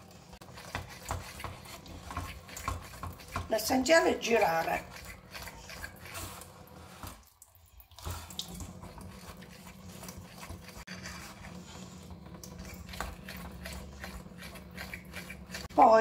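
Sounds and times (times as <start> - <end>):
fork stirring batter in bowl: 0.2 - 7.3, 8.0 - 16.0
thin stream of water into sink: 3.8 - 10.9.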